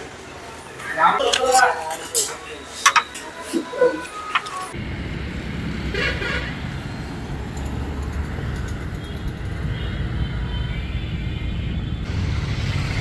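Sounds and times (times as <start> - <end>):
traffic engines rumbling: 0.0 - 13.0
vehicle horn toot: 5.9 - 6.6.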